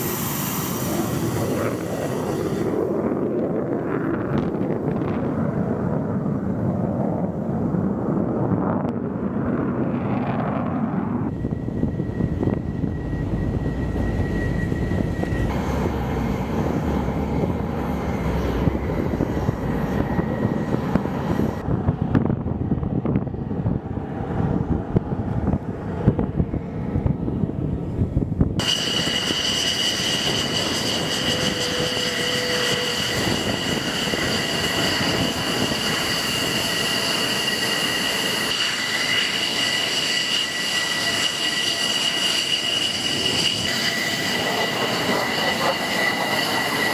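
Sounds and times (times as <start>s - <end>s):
high-pitched turbine whine: 0.0s - 46.9s
jet engines rumbling: 0.0s - 46.9s.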